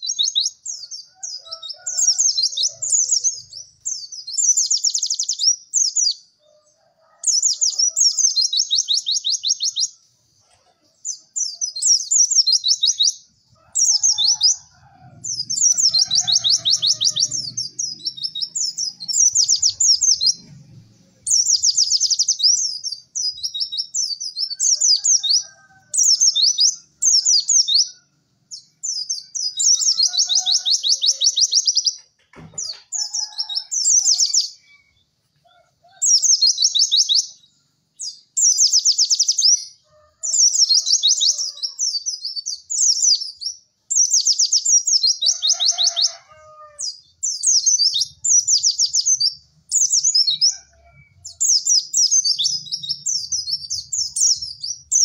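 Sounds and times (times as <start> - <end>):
bird chattering trills: 0.0 - 6.2, 7.3 - 20.5.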